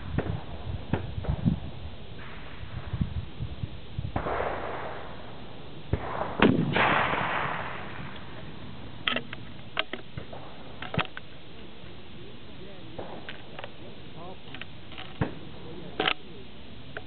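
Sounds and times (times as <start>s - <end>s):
faint gunshot with rumbling tail: 4.1s - 8.4s
rifle shot: 4.1s - 11.0s, 12.9s - 13.6s, 15.1s - 16.1s
sharp clicks: 9.0s - 10.2s.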